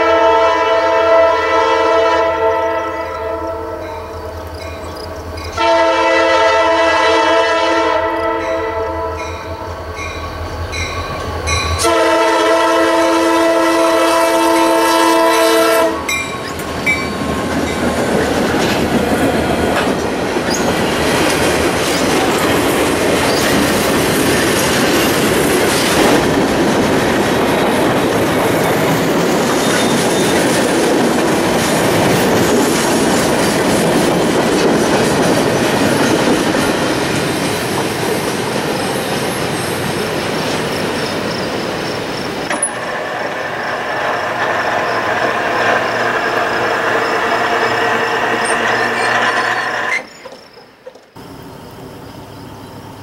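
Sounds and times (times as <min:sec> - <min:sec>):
locomotive air horn: 0:00.0 - 0:04.0, 0:05.6 - 0:09.6, 0:11.8 - 0:16.2
train wheels clattering on rails: 0:14.5 - 0:51.2.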